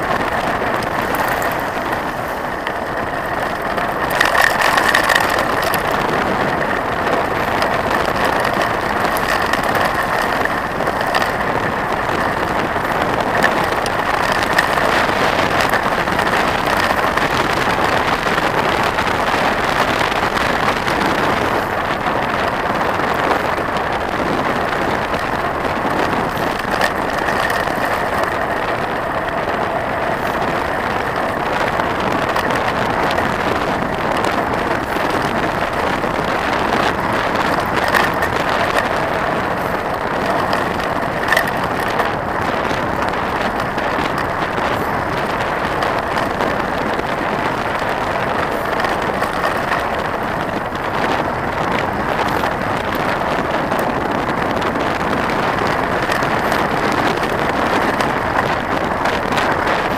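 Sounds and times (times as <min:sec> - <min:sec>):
bike rattling and knocking: 0:00.0 - 0:59.9
bike tyres on gravel: 0:00.0 - 0:59.9
wind rushing over microphone: 0:00.0 - 0:59.9.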